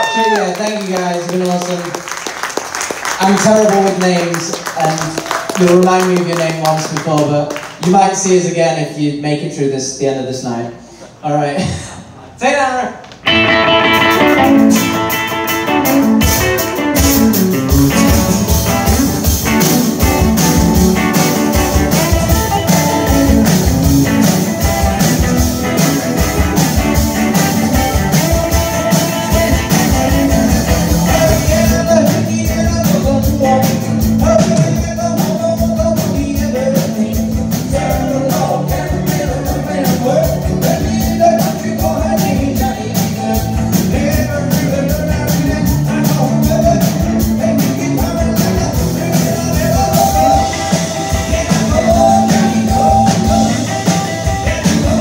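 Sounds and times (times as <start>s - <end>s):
rock and roll band playing: 0.0s - 9.6s, 13.0s - 55.0s
singing: 31.0s - 55.0s.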